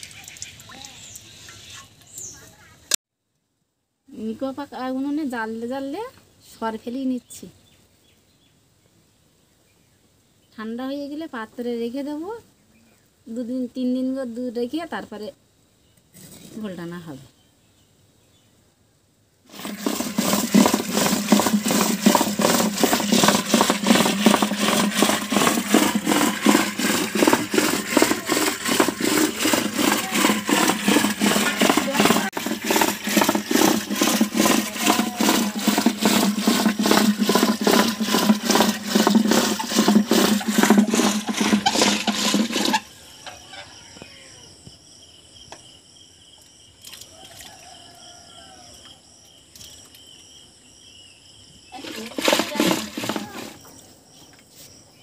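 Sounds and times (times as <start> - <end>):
liquid sloshing in churning pot: 19.5 - 42.9, 51.8 - 53.6
crickets chirping: 41.3 - 55.0.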